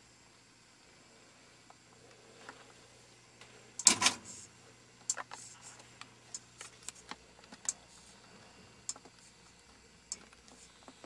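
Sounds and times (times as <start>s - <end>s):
faint steady hum: 0.0s - 11.0s
light clicks and ticks: 8.8s - 11.0s.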